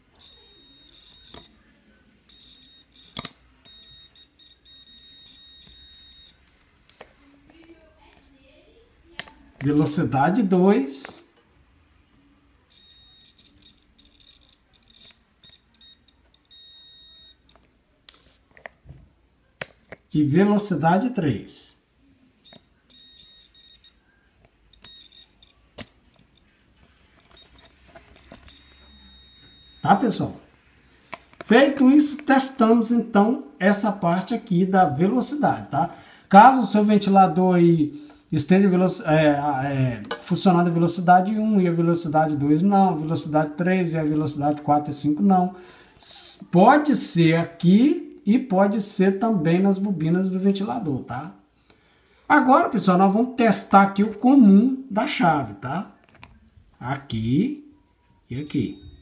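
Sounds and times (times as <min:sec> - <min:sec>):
multimeter high-pitched beep: 0:00.1 - 0:01.6, 0:02.3 - 0:06.4, 0:12.7 - 0:17.6, 0:22.4 - 0:24.1, 0:24.7 - 0:25.6, 0:28.4 - 0:30.1, 0:58.3 - 0:59.0.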